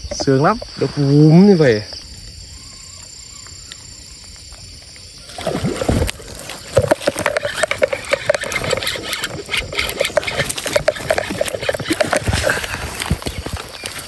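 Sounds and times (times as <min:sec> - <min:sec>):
fishing reel clicking and rattling: 0:06.8 - 0:13.1.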